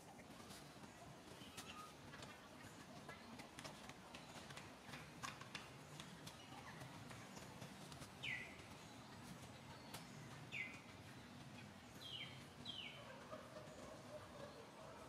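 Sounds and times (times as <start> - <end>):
bird chirping: 5.9 - 15.0.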